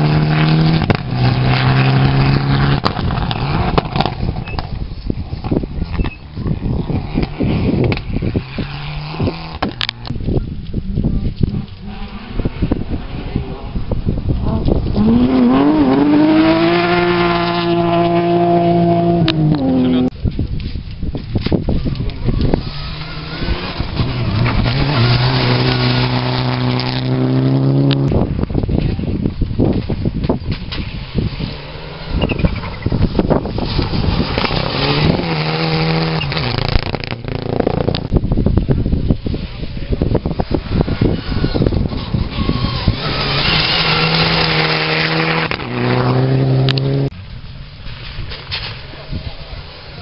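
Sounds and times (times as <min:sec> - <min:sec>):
rally car engine at high revs: 0:00.0 - 0:04.2, 0:14.4 - 0:20.1, 0:22.4 - 0:28.2, 0:30.8 - 0:38.1, 0:41.0 - 0:47.1
gravel noise: 0:00.0 - 0:50.0
gravel spraying from tyres: 0:22.5 - 0:27.7, 0:29.8 - 0:38.1.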